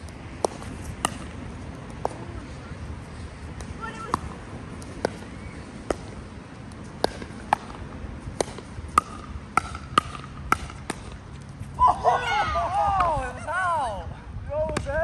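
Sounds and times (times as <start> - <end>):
paddles hitting plastic ball: 3.6 - 11.2.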